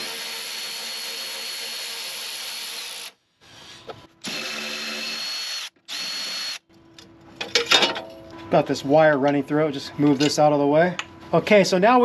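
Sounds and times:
electric ratchet motor whirring: 0:04.2 - 0:06.6.

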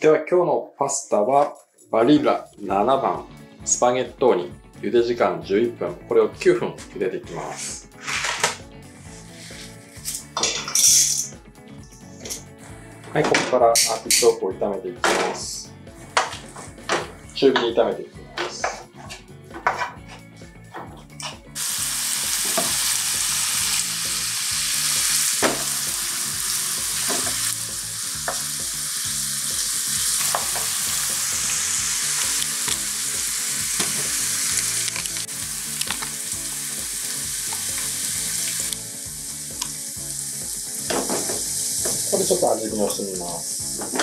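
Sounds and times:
vegetables sizzling in oil: 0:21.6 - 0:44.0.

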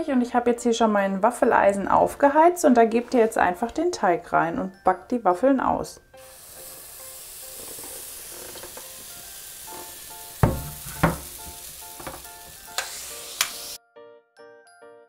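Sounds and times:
batter sizzling on waffle iron: 0:06.2 - 0:13.8.

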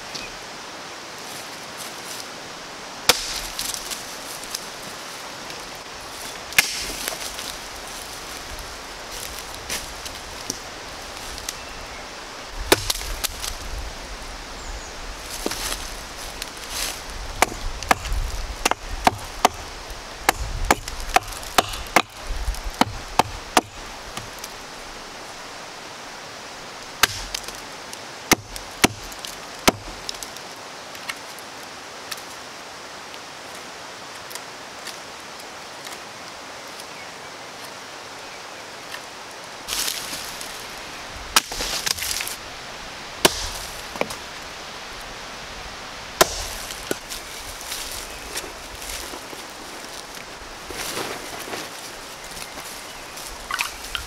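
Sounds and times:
hatchet chopping log: 0:03.1 - 0:03.8, 0:06.6 - 0:07.2, 0:12.7 - 0:13.4, 0:17.4 - 0:19.7, 0:20.3 - 0:24.4, 0:27.0 - 0:27.6, 0:28.3 - 0:30.2, 0:41.3 - 0:42.2, 0:43.2 - 0:44.2, 0:46.2 - 0:47.2
scuffling: 0:15.2 - 0:18.6, 0:39.7 - 0:40.8, 0:41.4 - 0:42.4, 0:46.2 - 0:54.0.

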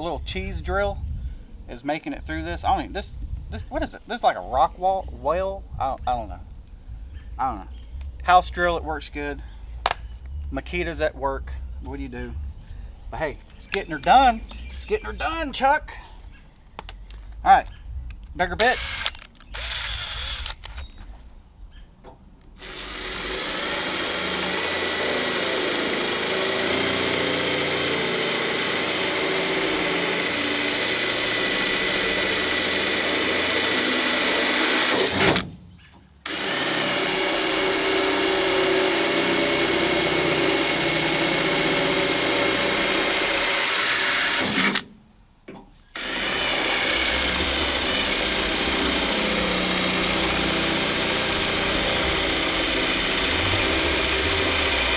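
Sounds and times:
cordless drill boring through metal: 0:18.6 - 0:21.0, 0:22.6 - 0:35.4, 0:36.2 - 0:44.8, 0:46.0 - 0:54.9.

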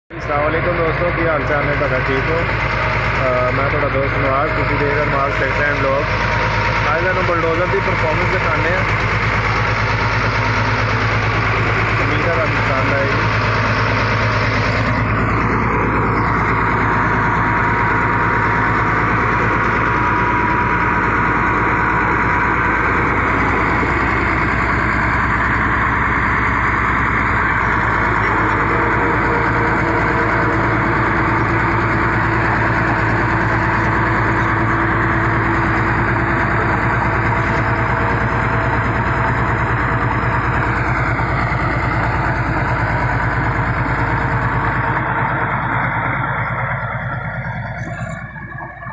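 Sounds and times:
bulldozer diesel engine running: 0:00.1 - 0:48.9
bulldozer blade pushing soil: 0:00.3 - 0:48.9.

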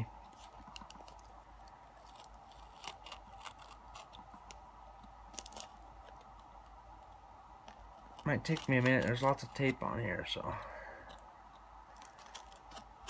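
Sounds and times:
knife cutting packing tape: 0:08.2 - 0:09.8.

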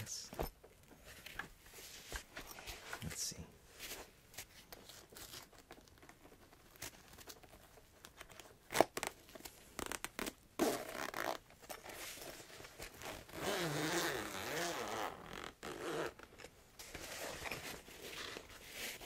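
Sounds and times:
zipper being pulled: 0:09.8 - 0:19.0
fabric case rustling: 0:15.6 - 0:19.0.

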